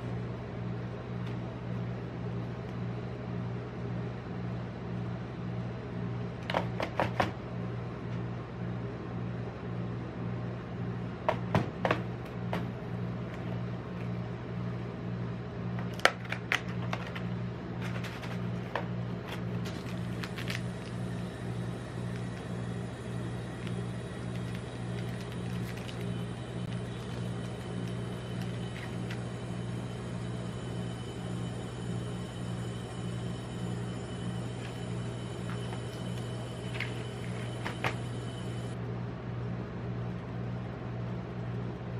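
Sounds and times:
refrigeration unit humming: 0.0s - 41.9s.

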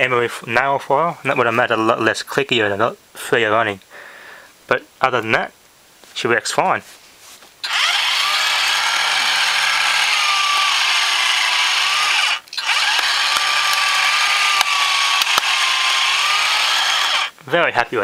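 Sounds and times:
electric motor and gears whirring: 7.6s - 17.4s
plastic mechanism clicks: 14.6s - 15.5s.

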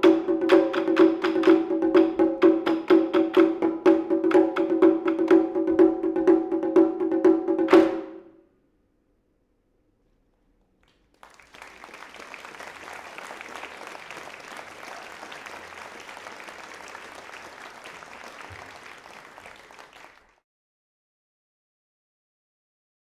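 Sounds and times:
audience applauding: 10.9s - 20.4s.

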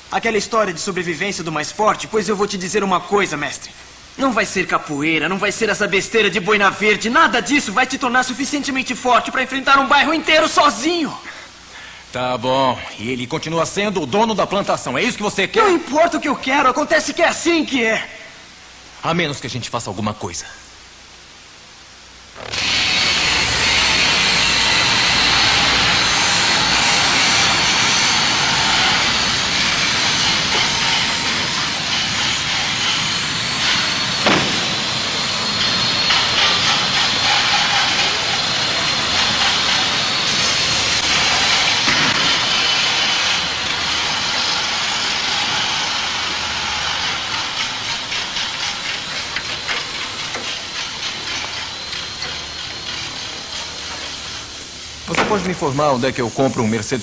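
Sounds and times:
faint high whine: 0.0s - 57.0s
loud steady hiss: 0.0s - 57.0s
sharp knock: 34.2s - 34.8s.

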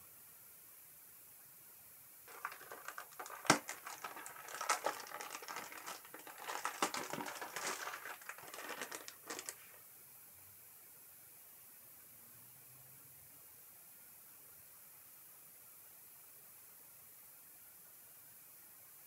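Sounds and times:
packaging crinkling: 2.3s - 9.8s.

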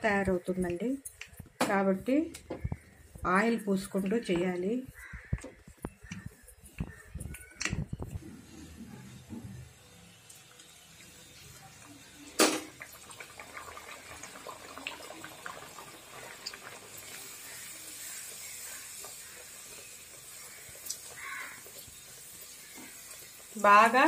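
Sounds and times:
food frying in hot oil: 9.1s - 24.0s.

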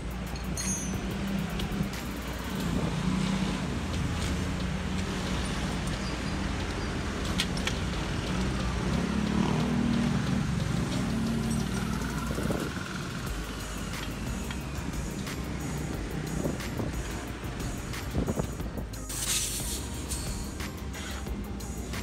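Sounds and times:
vehicle engines humming: 0.0s - 22.0s
metal chain clinks: 0.2s - 1.3s.

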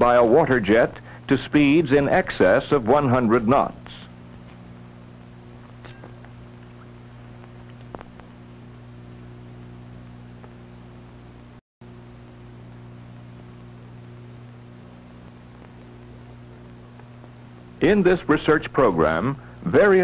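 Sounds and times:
electrical hum and hiss: 0.0s - 20.0s
faint clicks and crackles: 4.2s - 9.6s, 10.3s - 10.8s, 12.0s - 17.8s.

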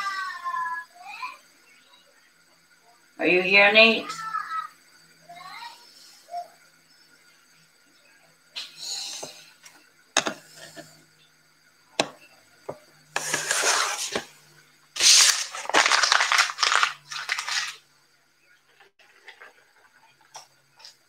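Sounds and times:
packaging crinkling and tearing: 15.0s - 17.8s.

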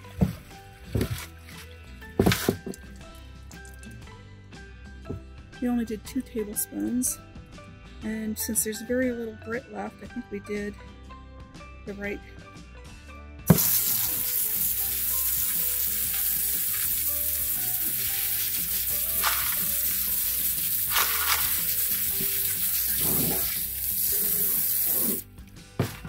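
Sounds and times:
water splashing into sink: 13.5s - 24.7s
water spraying onto rocks: 13.5s - 25.2s.

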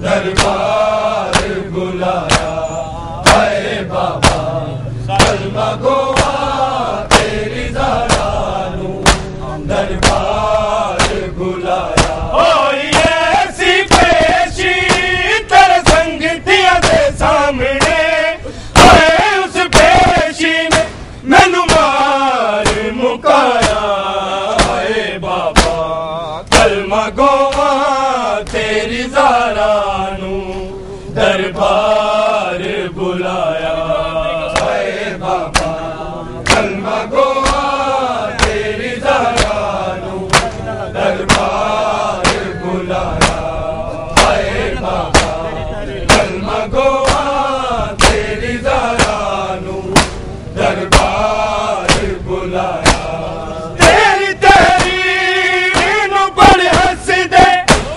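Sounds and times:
men chanting a lament: 0.0s - 57.9s
chest-beating slaps: 0.3s - 1.6s, 2.2s - 2.6s, 3.2s - 3.6s, 4.2s - 4.5s, 5.2s - 6.5s, 7.1s - 7.4s, 8.0s - 8.4s, 9.0s - 11.3s, 11.9s - 15.1s, 15.8s - 16.2s, 16.8s - 17.1s, 17.8s - 18.0s, 18.8s - 21.0s, 21.6s - 22.0s, 22.6s - 22.9s, 23.6s - 24.9s, 25.5s - 25.9s, 26.5s - 26.8s, 27.4s - 27.8s, 28.4s - 28.7s, 34.5s - 34.8s, 35.4s - 35.8s, 36.4s - 36.8s, 37.4s - 39.7s, 40.3s - 42.5s, 43.2s - 43.5s, 44.1s - 44.5s, 45.1s - 45.4s, 46.1s - 46.4s, 47.0s - 47.4s, 48.0s - 48.3s, 48.9s - 49.3s, 49.9s - 50.3s, 50.9s - 51.2s, 51.8s - 52.2s, 52.8s - 55.1s, 55.7s - 57.9s.

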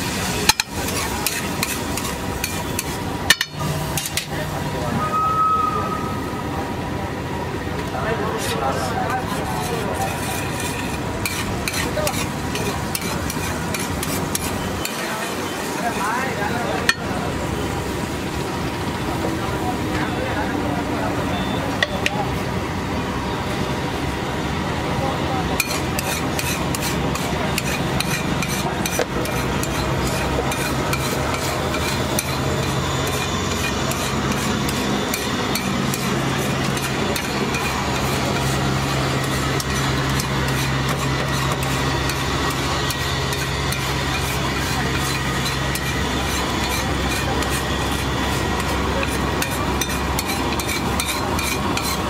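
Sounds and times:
egg sizzling on hot metal: 0.0s - 4.4s, 8.3s - 19.2s, 25.5s - 52.0s
metal spatula scraping a griddle: 0.0s - 4.4s, 8.3s - 16.4s, 25.6s - 52.0s.

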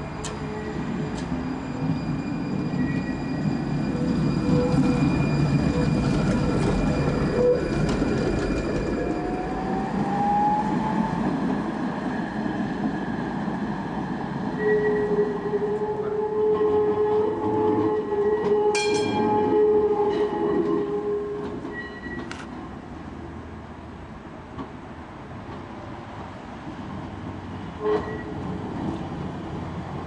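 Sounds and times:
tram wheels rumbling on rail: 0.0s - 30.0s
high squeal: 0.4s - 9.9s.

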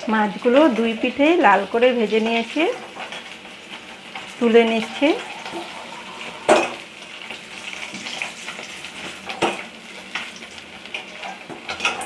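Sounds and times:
oil sizzling: 0.0s - 12.0s
metal spatula scraping a wok: 2.8s - 6.9s.

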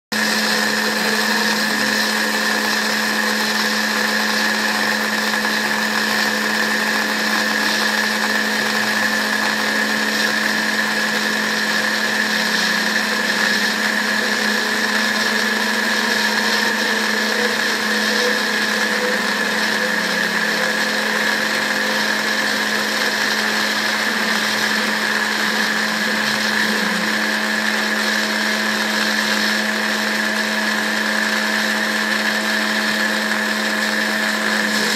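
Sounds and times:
router spindle whining: 0.1s - 34.9s.

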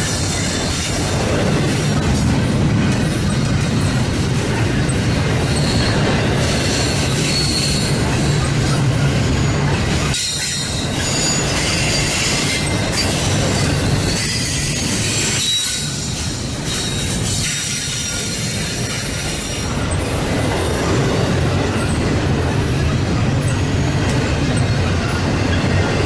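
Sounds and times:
train wheels rumbling on rail: 0.0s - 26.0s
high wheel squeals: 4.8s - 22.0s.

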